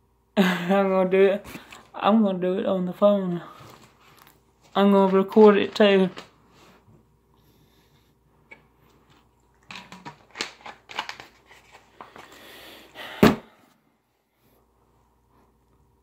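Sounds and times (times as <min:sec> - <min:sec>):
bottle handling clicks and rustles: 0:09.1 - 0:11.8.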